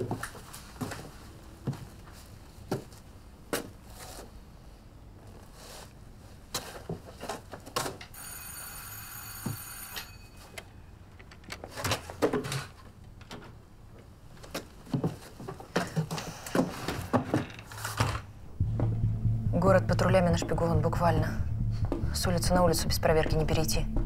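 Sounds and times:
bell ringing: 0:08.2 - 0:10.6.

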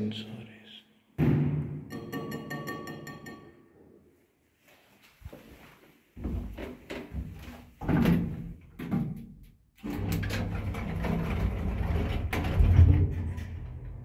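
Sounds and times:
lift knocks and clatter: 0:10.0 - 0:14.0.

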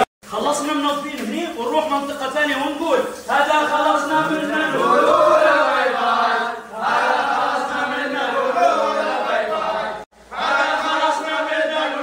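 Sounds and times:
men chanting in unison: 0:03.2 - 0:12.0.

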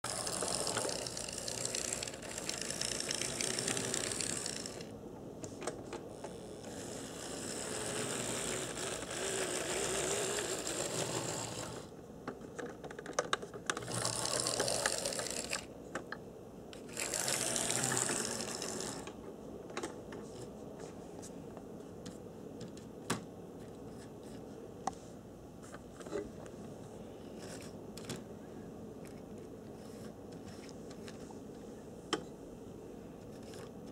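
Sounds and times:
small electric motor whirring: 0:00.1 - 0:04.9, 0:06.2 - 0:11.9, 0:13.8 - 0:15.7, 0:16.8 - 0:19.1.

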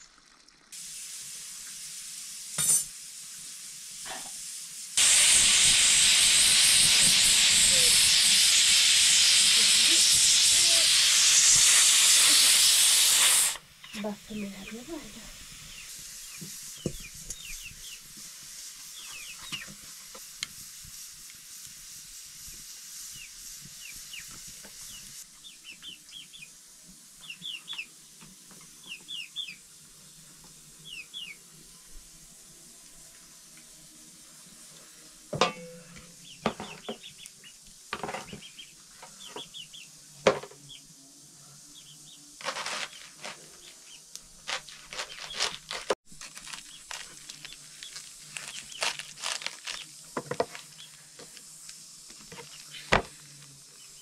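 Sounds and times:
faint steady hiss: 0:00.0 - 0:54.0
small birds chirping: 0:13.8 - 0:18.1, 0:18.9 - 0:19.7, 0:23.1 - 0:26.6, 0:27.2 - 0:27.9, 0:28.8 - 0:29.6, 0:30.8 - 0:31.4, 0:36.2 - 0:37.6, 0:38.2 - 0:39.9, 0:41.7 - 0:45.8, 0:46.4 - 0:51.0, 0:52.3 - 0:53.0
knife crunching through cabbage: 0:42.4 - 0:43.7, 0:44.4 - 0:50.8.

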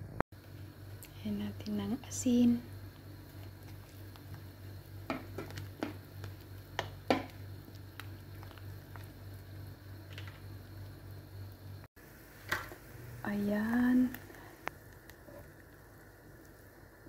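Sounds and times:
steady low hum: 0:00.0 - 0:17.0
soup bubbling: 0:02.7 - 0:13.2, 0:14.0 - 0:17.0.

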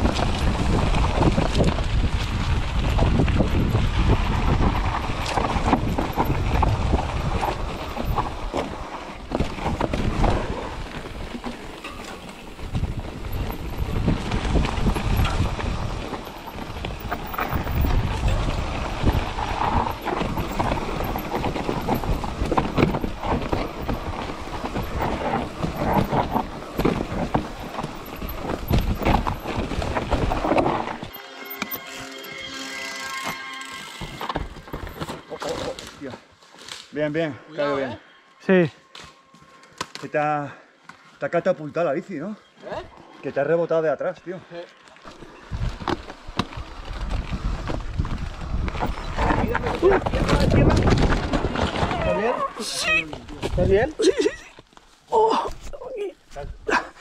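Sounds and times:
wind rumble on microphone: 0:00.0 - 0:11.8, 0:12.4 - 0:31.2, 0:45.3 - 0:54.0
mountain bike rattling over rocks: 0:00.0 - 0:37.3, 0:44.8 - 0:55.0.

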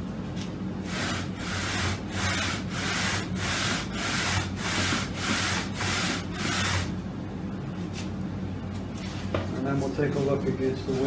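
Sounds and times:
sandpaper rasping on wood: 0:00.9 - 0:06.9.

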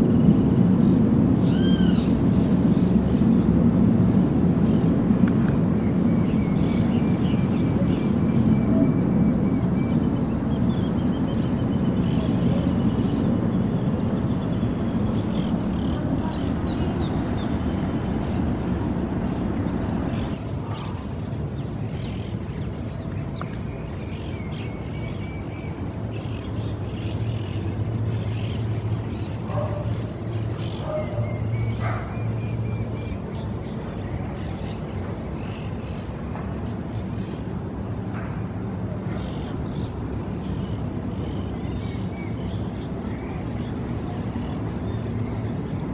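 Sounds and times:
low turbine-like rumble: 0:00.0 - 0:20.4
steady low hum: 0:00.0 - 0:20.7
small birds chirping: 0:04.1 - 0:20.4.

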